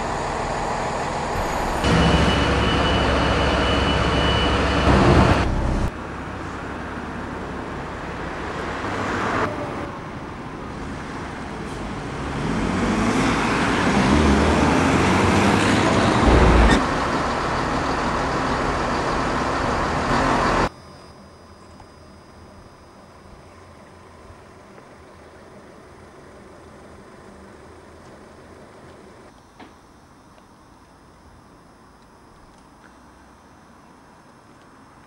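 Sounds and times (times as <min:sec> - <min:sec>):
diesel train idling: 0:00.0 - 0:08.5, 0:15.7 - 0:20.7
bus engine pulling away: 0:00.0 - 0:20.7
bus engine running: 0:00.0 - 0:20.7.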